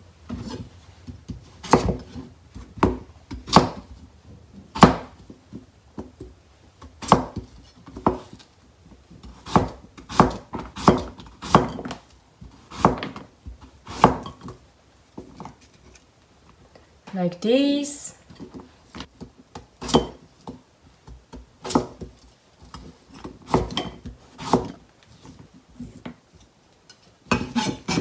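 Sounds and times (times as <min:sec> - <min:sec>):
knife slicing radish: 0:01.6 - 0:02.2, 0:09.3 - 0:14.5, 0:19.8 - 0:20.2, 0:21.0 - 0:26.0, 0:27.3 - 0:28.0.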